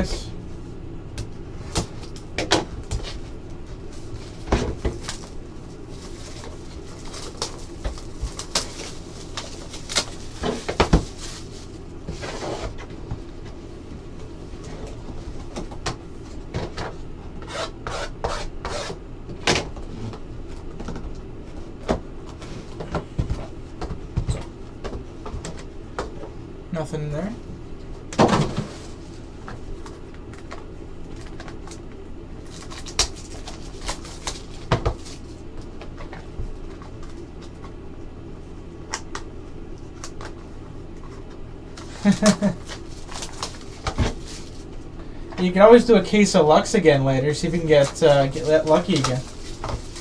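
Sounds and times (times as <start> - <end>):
plastic wrap crinkling: 3.9 - 11.9, 32.4 - 35.8, 41.8 - 44.8, 47.5 - 50.0.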